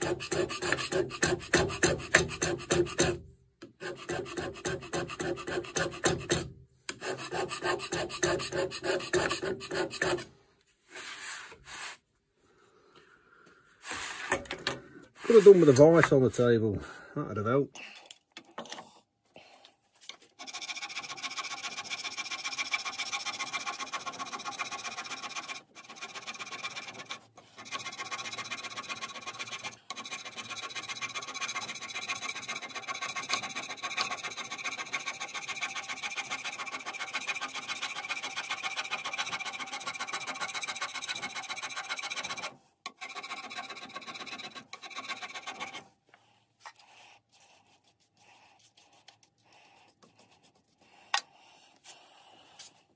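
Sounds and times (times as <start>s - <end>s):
hand scraper scraping cast iron: 0.0s - 10.3s, 20.4s - 45.9s.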